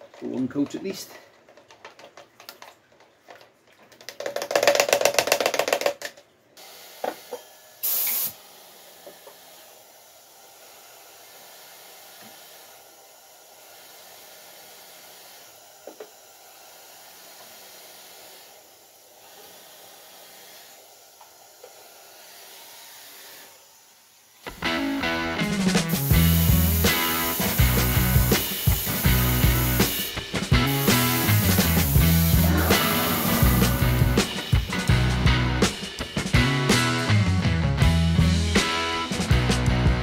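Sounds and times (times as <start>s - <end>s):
spray gun hissing: 6.6s - 35.1s.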